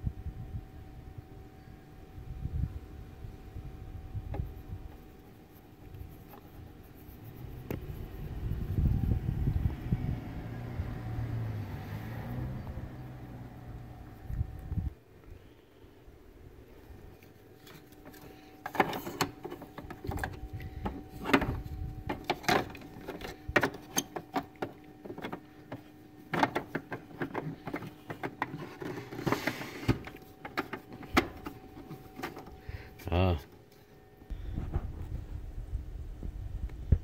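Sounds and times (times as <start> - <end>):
plastic parts clicking and knocking: 17.7 - 32.5.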